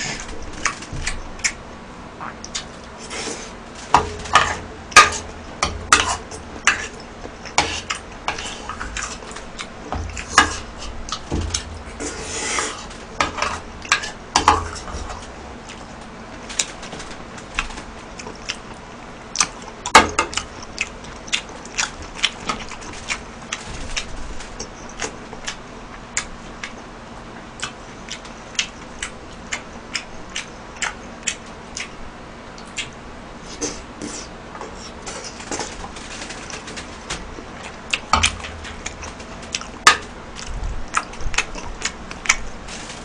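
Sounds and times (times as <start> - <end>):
chewing: 17.4 - 32.0, 32.6 - 39.8, 40.4 - 43.0.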